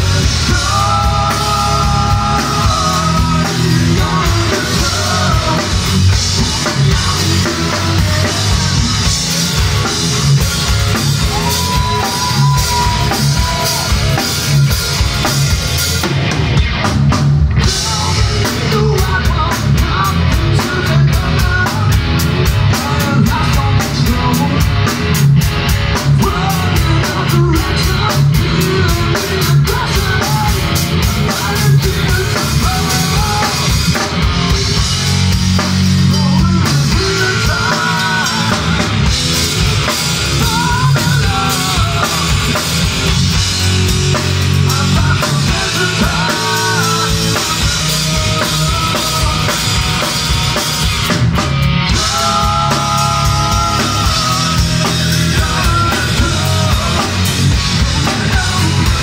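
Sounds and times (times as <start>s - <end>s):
man singing: 0.0s - 10.4s, 11.2s - 14.7s, 17.6s - 39.2s, 40.3s - 42.9s, 44.1s - 50.2s, 51.9s - 59.0s
drum beat: 0.0s - 21.6s
live hard rock band: 0.0s - 59.0s.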